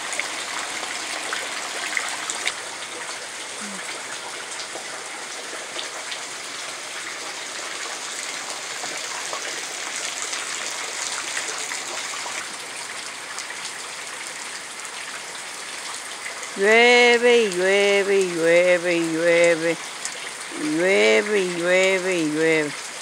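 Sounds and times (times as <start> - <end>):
steady rain falling: 0.0 - 23.0
raindrops clicking close by: 1.3 - 6.3.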